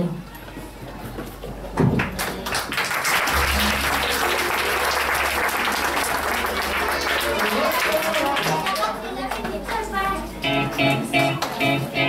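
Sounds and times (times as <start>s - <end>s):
audience applauding: 2.0s - 10.0s
low steady hum: 3.2s - 7.3s.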